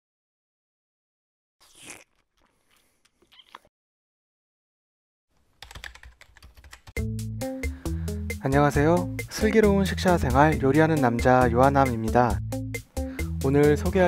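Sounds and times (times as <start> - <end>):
music with steady bass: 7.0 - 14.0.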